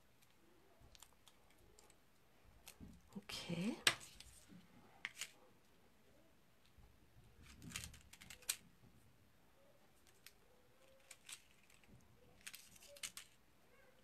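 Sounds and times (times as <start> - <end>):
paper rustling: 4.0 - 5.4, 10.0 - 13.4.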